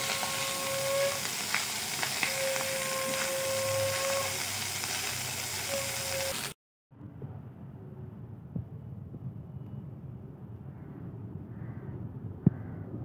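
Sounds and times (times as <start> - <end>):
rice sizzling in a frying pan: 0.0 - 6.6.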